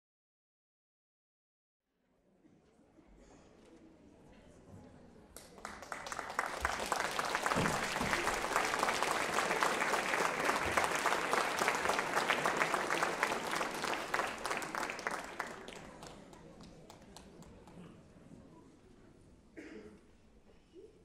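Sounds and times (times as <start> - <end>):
audience applauding: 5.4 - 17.3.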